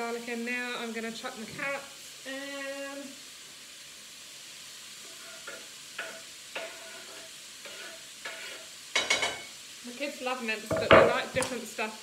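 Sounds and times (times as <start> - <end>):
vegetables sizzling in oil: 0.0 - 12.0
utensil scraping a pan: 5.0 - 9.5.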